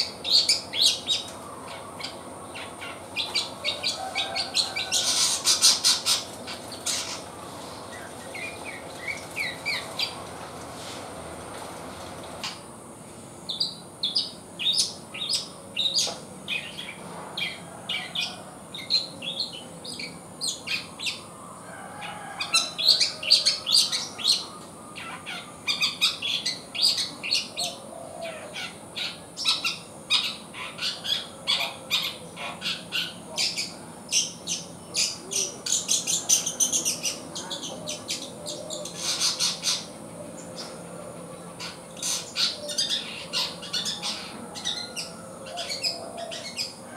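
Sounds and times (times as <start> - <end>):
bird chirping and twittering: 0.0 - 10.3, 13.5 - 21.3, 22.5 - 46.8.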